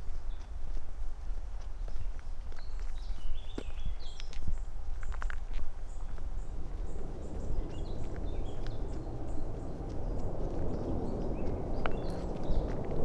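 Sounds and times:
footsteps on path: 0.0 - 13.0
small birds chirping: 0.0 - 13.0
low rumble: 5.8 - 13.0.

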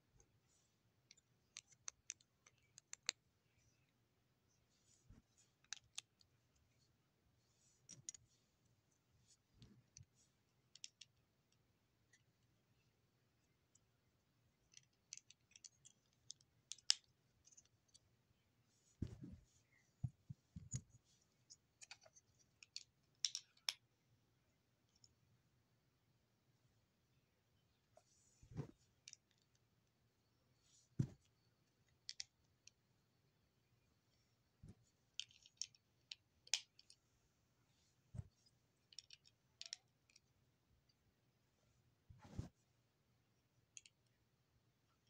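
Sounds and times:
dull thumps: 19.0 - 20.8
plastic bricks clicking: 38.9 - 40.2.

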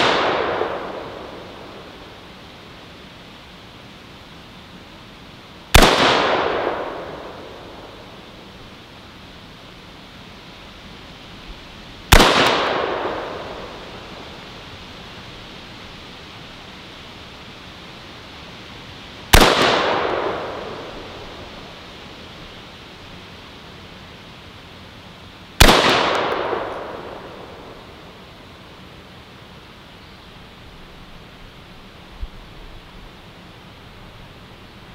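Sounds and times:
rifle shots: 0.0 - 2.0, 5.7 - 8.1, 12.1 - 14.3, 19.3 - 21.5, 25.6 - 28.0.

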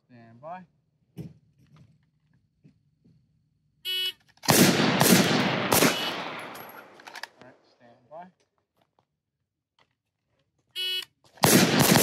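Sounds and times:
gunshots with echo: 4.5 - 7.0, 11.4 - 12.0.

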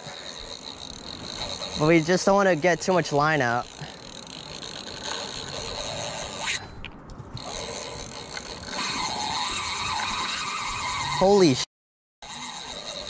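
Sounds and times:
fishing reel drag clicking: 0.0 - 6.7, 7.3 - 11.6, 12.2 - 13.0.

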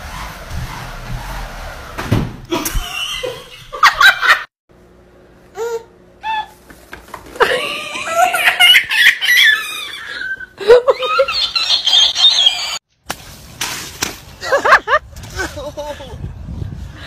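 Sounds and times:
thump: 2.0 - 2.4
people laughing and squealing: 7.4 - 12.8.

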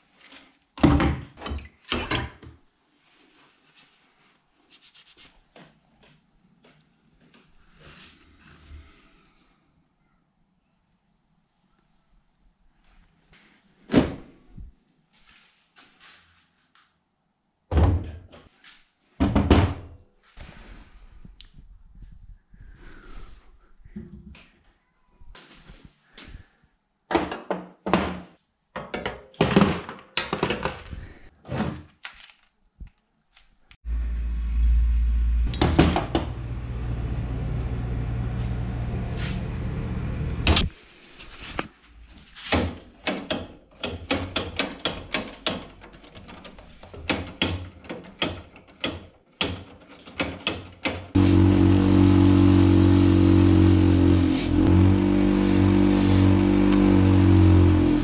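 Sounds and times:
knocks and clicks of handling parts: 27.1 - 31.0, 42.5 - 51.2
small petrol engine running: 51.2 - 58.0.

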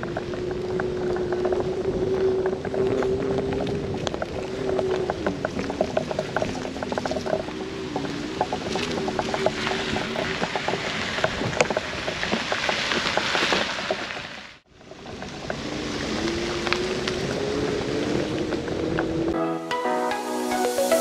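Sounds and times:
scattered ticks: 0.0 - 19.4
vehicle engine: 0.0 - 19.4.

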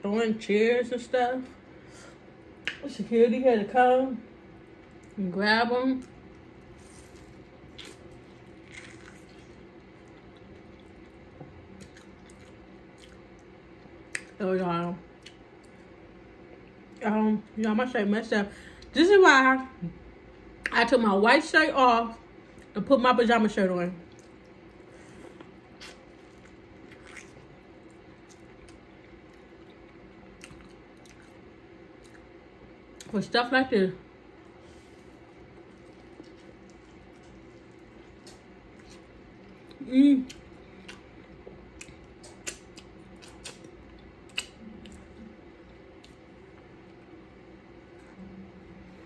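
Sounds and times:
chewing: 6.0 - 13.5, 24.1 - 32.3, 34.9 - 46.7
wet squishing of food: 6.0 - 14.4, 24.0 - 33.1, 34.3 - 47.0.

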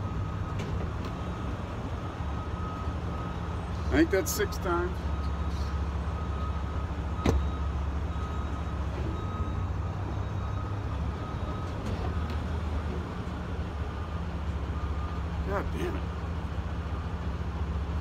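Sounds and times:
truck engine running: 0.0 - 18.0.

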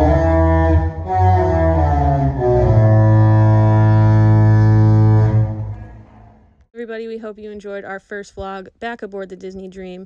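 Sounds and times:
ship's musical horn playing: 0.0 - 6.4.

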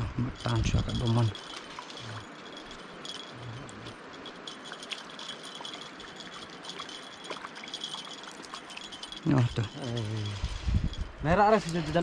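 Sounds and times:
faint high rattling: 0.4 - 12.0
river water rushing: 0.5 - 10.6.

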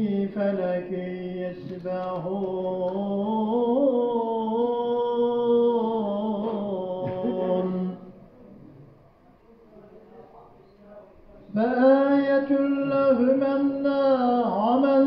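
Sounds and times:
man chanting into a microphone: 0.0 - 8.1, 11.4 - 15.0.

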